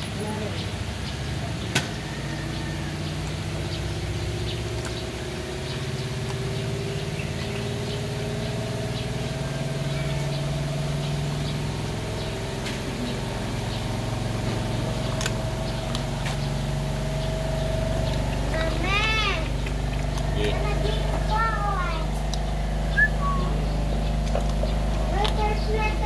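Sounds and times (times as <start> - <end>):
motor engine idling: 0.0 - 26.0
puppy crunching bones: 19.4 - 21.3, 24.1 - 25.6.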